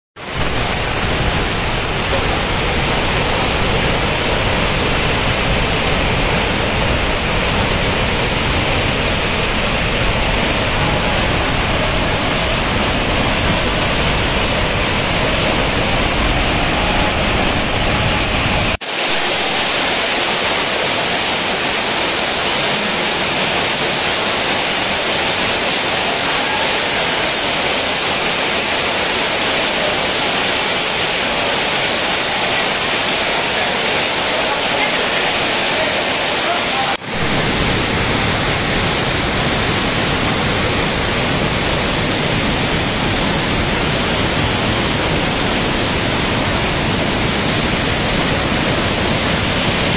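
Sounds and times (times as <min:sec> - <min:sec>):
heavy rain: 0:00.2 - 0:49.9
waterfall rushing: 0:00.2 - 0:49.9.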